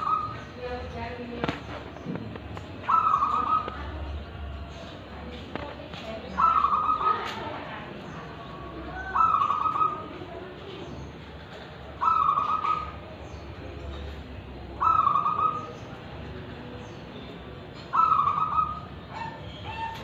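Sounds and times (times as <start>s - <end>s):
dove cooing: 0.0s - 0.6s, 1.4s - 4.9s, 6.2s - 7.6s, 8.7s - 10.7s, 11.5s - 13.2s, 14.7s - 16.0s, 17.8s - 20.0s.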